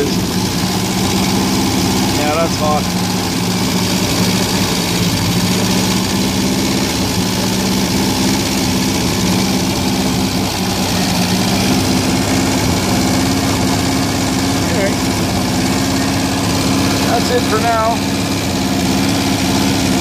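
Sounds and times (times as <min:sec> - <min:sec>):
car engine idling: 0:00.0 - 0:20.0.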